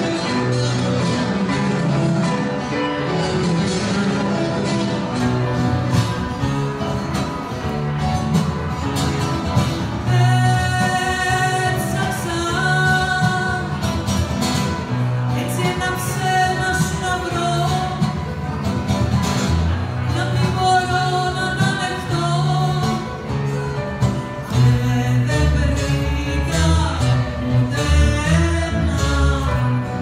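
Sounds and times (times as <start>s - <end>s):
acoustic guitar: 0.0s - 30.0s
piano: 0.0s - 30.0s
woman singing: 10.0s - 14.0s, 15.3s - 18.3s, 20.1s - 23.3s, 24.4s - 30.0s.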